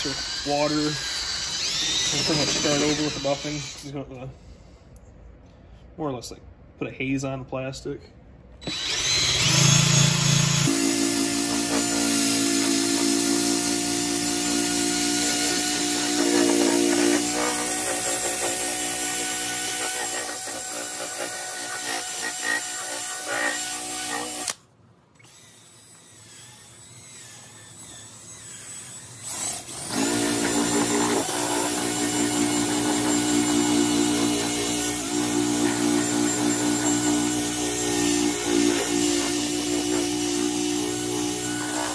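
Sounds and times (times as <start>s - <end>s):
drill motor running: 0.0s - 3.9s, 8.6s - 24.6s, 25.2s - 41.9s
buffing pad rubbing plastic: 16.2s - 18.8s, 19.7s - 24.3s.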